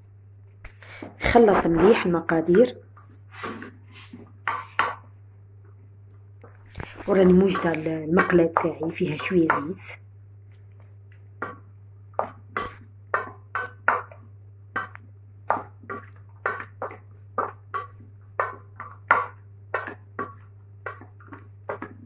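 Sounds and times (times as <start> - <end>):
low electrical hum: 0.0 - 22.0
hands squelching food in bowl: 6.1 - 22.0.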